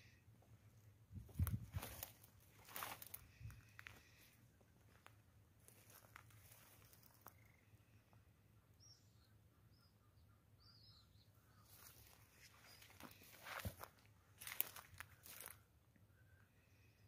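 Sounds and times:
footsteps on dry ground: 1.2 - 4.2, 4.8 - 7.4, 11.7 - 15.6
distant bird chirps: 2.9 - 17.0.

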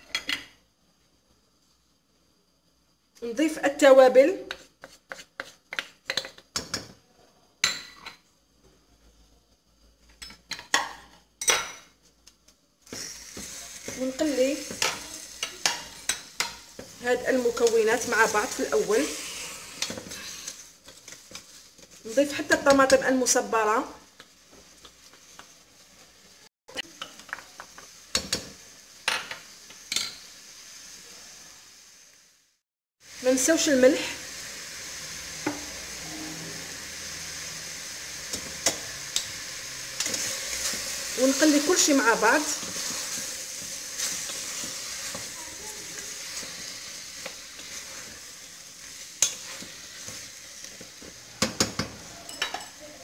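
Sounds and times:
food sizzling in oil: 2.4 - 7.0, 9.7 - 53.0
wooden spoon stirring in pot: 4.4 - 6.6, 12.9 - 23.4, 39.9 - 53.0.

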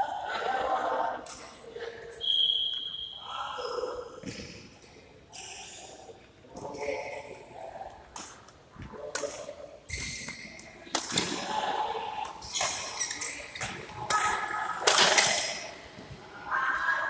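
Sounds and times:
racket hitting shuttlecock: 9.1 - 11.5, 12.3 - 15.7
shoes squeaking on court: 9.8 - 10.8, 12.4 - 14.0.

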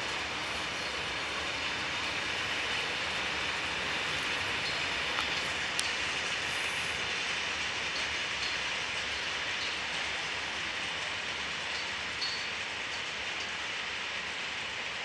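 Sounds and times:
train wheels hissing on rail: 0.0 - 15.0
faint clicks: 4.6 - 6.0.

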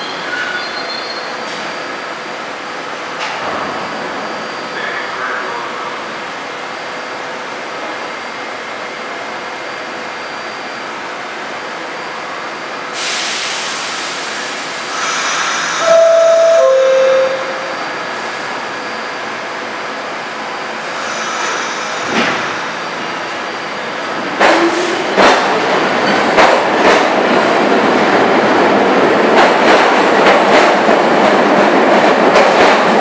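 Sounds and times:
subway train equipment running: 0.0 - 33.0
air hiss: 12.9 - 15.8.

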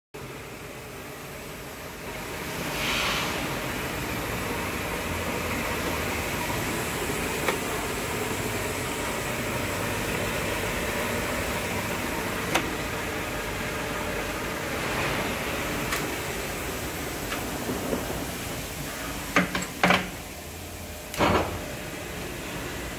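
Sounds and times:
lathe running with mechanical whir: 3.4 - 19.5.

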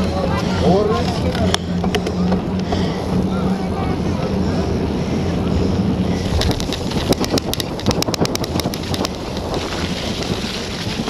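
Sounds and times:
wind buffeting microphone: 0.0 - 11.0
bicycle clicks and rattles: 6.2 - 11.0.

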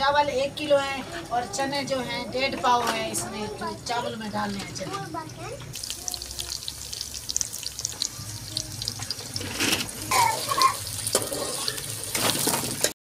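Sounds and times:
onions sizzling in hot oil: 4.3 - 12.9
metal ladle stirring pot: 8.9 - 12.9.

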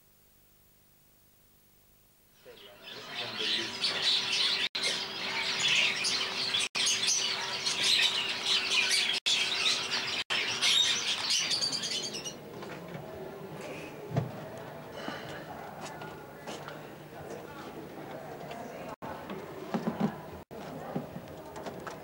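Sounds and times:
canaries chirping and twittering: 2.4 - 12.8.

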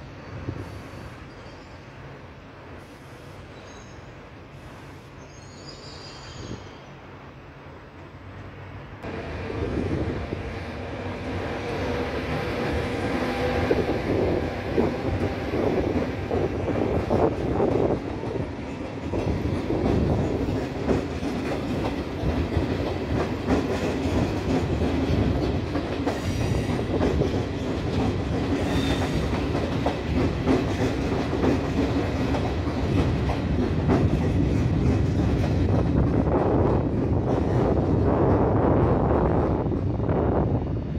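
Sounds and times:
steady train hum: 0.0 - 40.9
train wheels clicking over rail joints: 11.0 - 38.4.

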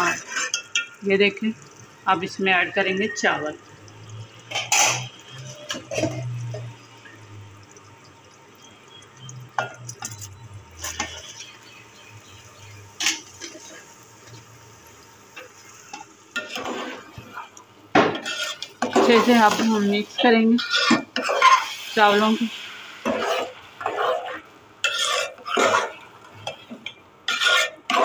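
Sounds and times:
spoon stirring rice: 0.0 - 1.0, 15.3 - 19.7, 20.6 - 21.7, 23.0 - 28.0
syrup bubbling: 0.0 - 28.0.

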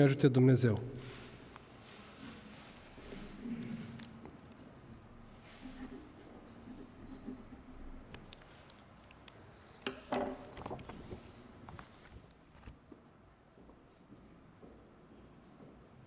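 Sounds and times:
pen writing on paper: 5.5 - 8.1.

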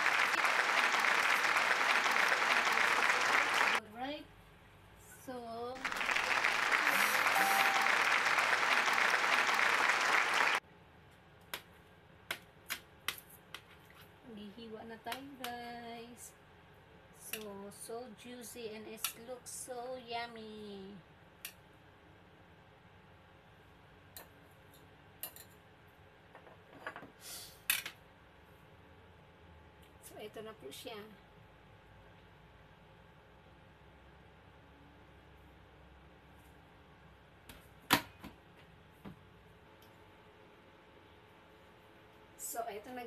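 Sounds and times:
dense clapping: 0.0 - 3.8, 5.8 - 10.6.

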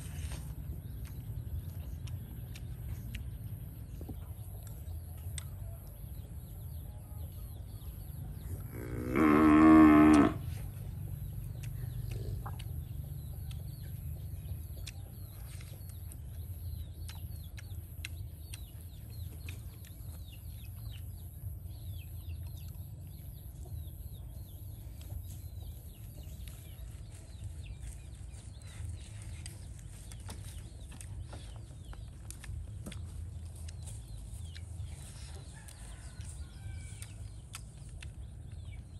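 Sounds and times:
steady low rumble: 0.0 - 9.2, 10.3 - 38.9
cow mooing: 8.7 - 10.4.

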